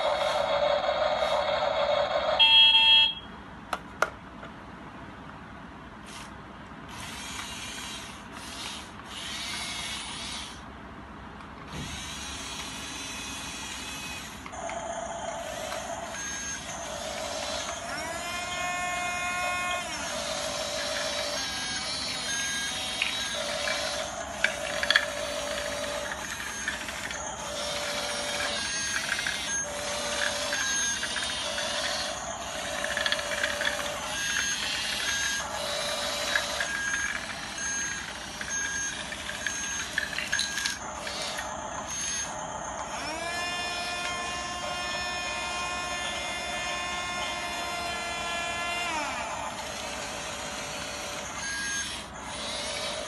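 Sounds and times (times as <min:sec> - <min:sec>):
electric motors whining: 0:00.0 - 0:02.6, 0:06.9 - 0:10.7, 0:11.7 - 0:53.0
electronic beeping: 0:14.8 - 0:42.9
gear clicks: 0:19.8 - 0:41.6.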